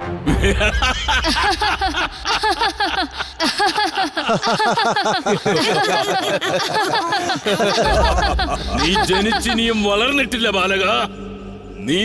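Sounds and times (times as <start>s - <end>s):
cartoon voice laughing: 0.3s - 9.7s.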